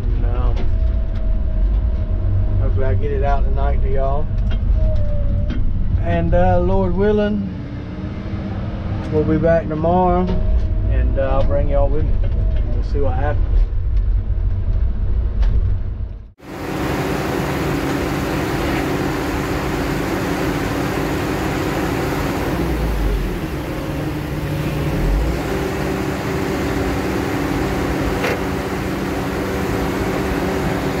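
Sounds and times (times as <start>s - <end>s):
log loader engine running: 16.4s - 31.0s
truck diesel engine pulling away: 16.4s - 31.0s.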